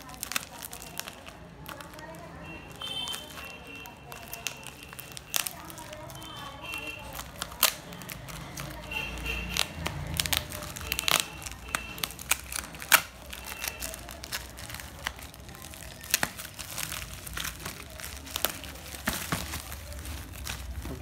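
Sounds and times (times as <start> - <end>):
bubble wrap crackling: 0.0 - 21.0.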